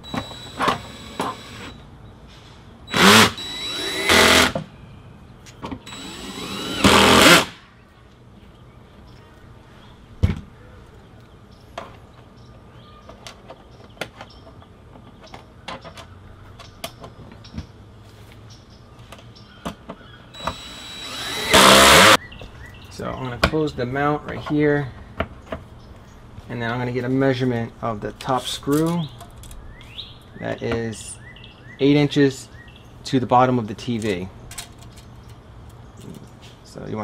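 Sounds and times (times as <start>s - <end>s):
cordless drill driving screws: 0.0s - 1.8s, 2.9s - 4.6s, 5.8s - 7.6s, 20.4s - 22.2s.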